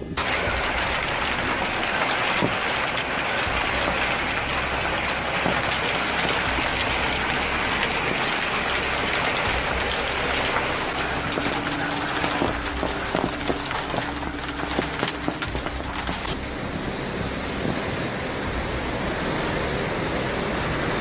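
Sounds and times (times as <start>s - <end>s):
hail on corrugated roof: 0.2s - 21.0s.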